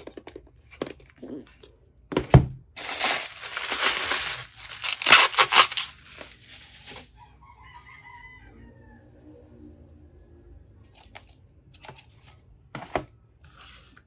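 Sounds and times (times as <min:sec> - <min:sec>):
bubble wrap crinkling: 0:02.8 - 0:07.2.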